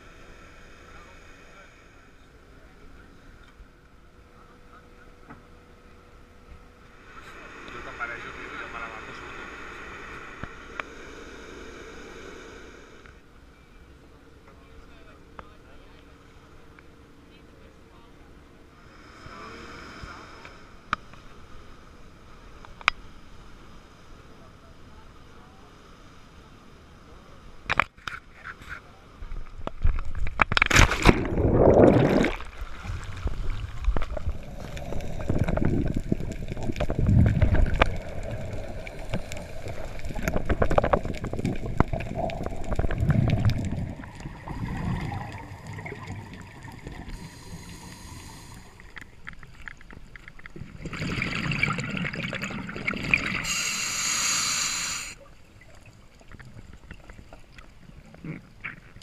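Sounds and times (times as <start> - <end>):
underwater sloshing and gurgling: 0.0 - 59.0
regulator bubbling hiss: 6.9 - 13.2, 31.2 - 49.2, 50.6 - 55.4.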